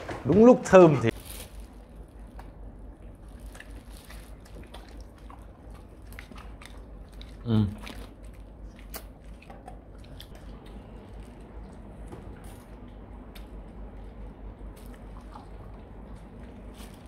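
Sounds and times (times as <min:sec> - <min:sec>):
dogs chewing treats: 0:02.0 - 0:17.0.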